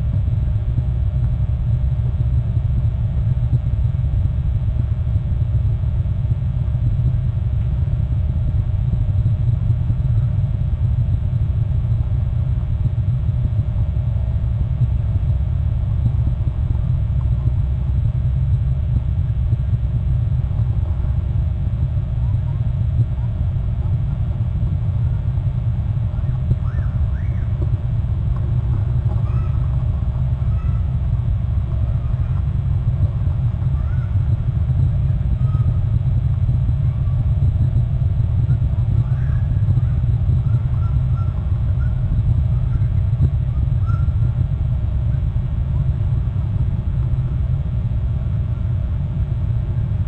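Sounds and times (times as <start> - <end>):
wind buffeting microphone: 0.0 - 50.0.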